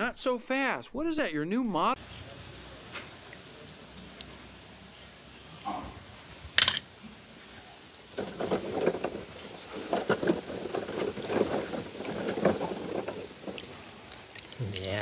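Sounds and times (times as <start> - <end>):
toy car plopping into water: 6.6 - 6.8
water sloshing and splashing: 8.0 - 14.6.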